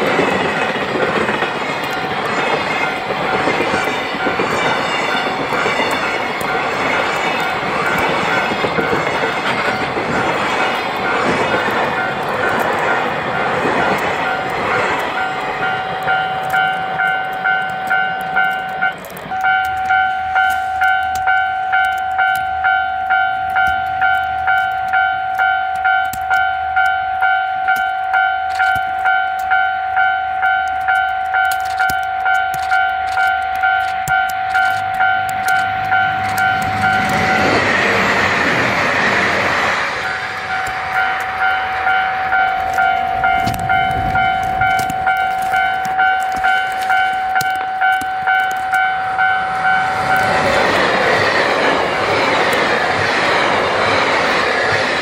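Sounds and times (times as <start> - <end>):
level crossing warning bell: 0.0 - 38.3, 40.0 - 53.1
train wagons rumbling past: 0.0 - 55.0
loud rushing noise: 35.7 - 44.7, 48.9 - 55.0.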